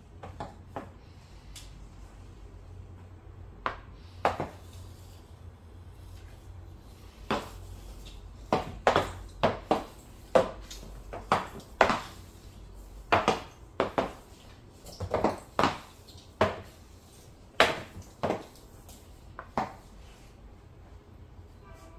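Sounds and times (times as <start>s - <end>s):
hockey stick striking puck: 11.2s - 12.1s.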